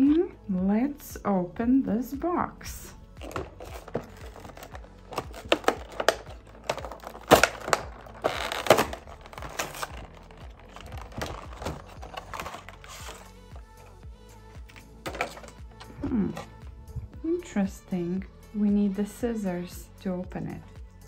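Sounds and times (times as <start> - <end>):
plastic blister packaging crinkling: 3.2 - 13.8.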